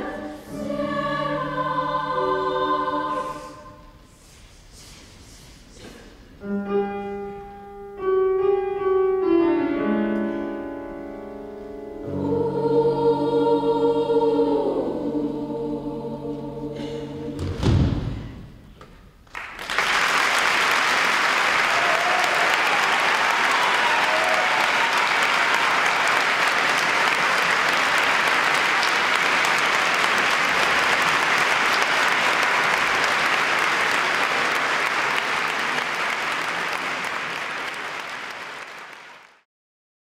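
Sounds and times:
children's choir singing: 0.0s - 5.2s, 12.0s - 18.0s
audience applause: 19.3s - 39.4s.

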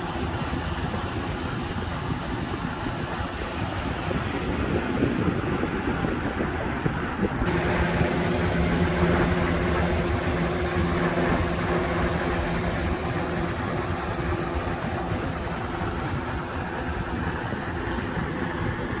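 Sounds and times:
box fan air rush: 0.0s - 19.0s
low motor hum: 7.3s - 19.0s.

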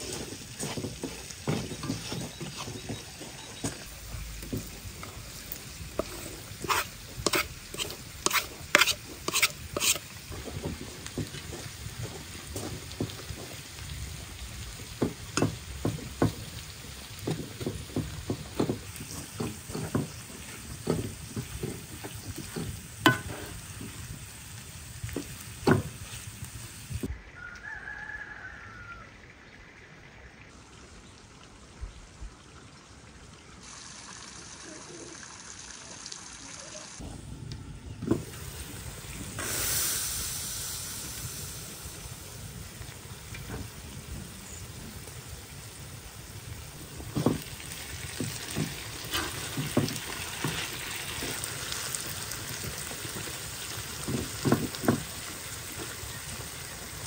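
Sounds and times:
spatula scraping a pan: 0.0s - 3.6s, 4.6s - 12.8s, 17.4s - 23.9s, 49.0s - 50.6s
vegetables sizzling in a pan: 0.0s - 27.1s, 38.0s - 57.0s.

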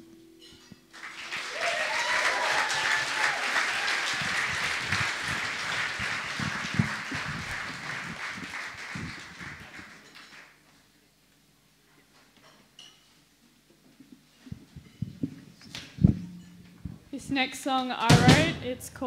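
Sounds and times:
audience applauding: 0.9s - 10.6s.

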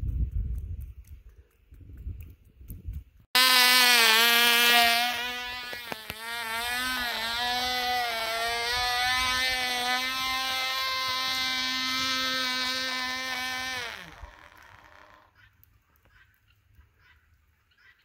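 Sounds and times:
model airplane engine buzzing: 3.4s - 15.4s.

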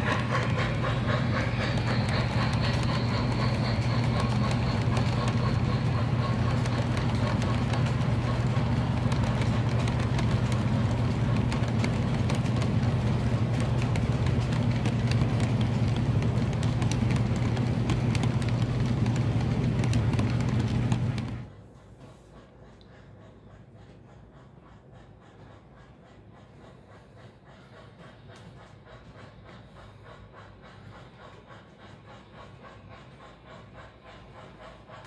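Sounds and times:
model train cars rolling: 0.0s - 23.4s.

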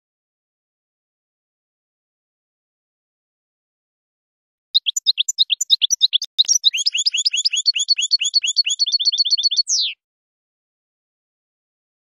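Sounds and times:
goldfinch singing: 4.8s - 10.0s.

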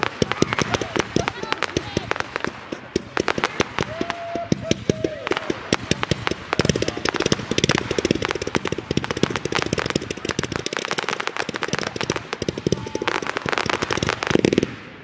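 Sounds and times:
fireworks pops and bangs: 0.0s - 15.0s.

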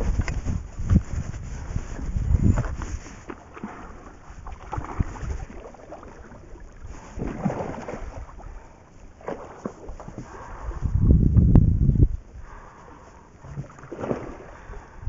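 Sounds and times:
fish thrashing water splashing: 3.3s - 8.5s, 13.6s - 14.6s.

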